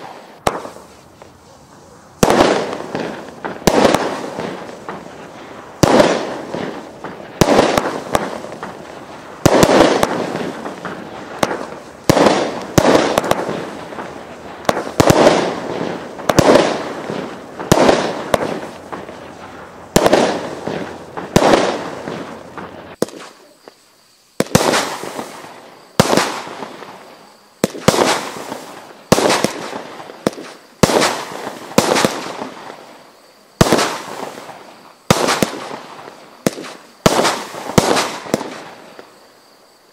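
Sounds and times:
fireworks bangs: 0.0s - 39.6s.

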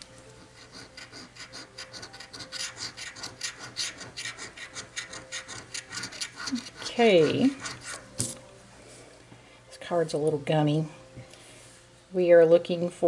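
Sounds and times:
scratch card being scraped: 0.6s - 8.1s.

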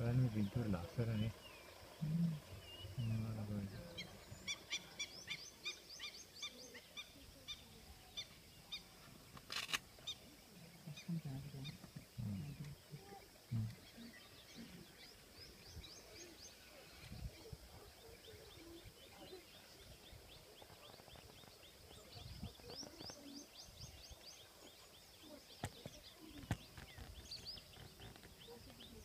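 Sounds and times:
low outdoor rumble: 0.0s - 6.8s
birds chirping faintly: 0.0s - 29.0s.

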